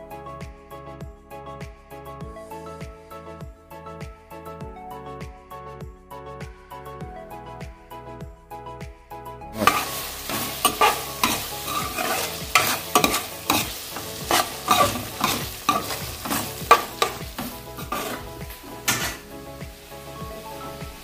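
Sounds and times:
soft background music: 0.0s - 21.0s
metal spatula scraping pot: 9.6s - 19.3s
curry sizzling in a metal pot: 9.6s - 21.0s.

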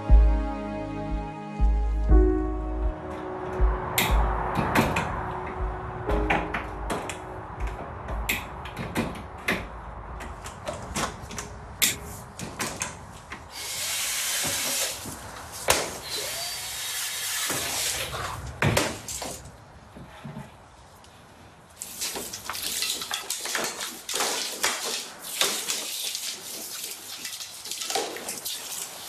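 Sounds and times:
plastic tubes clicking and clattering: 21.8s - 26.5s.

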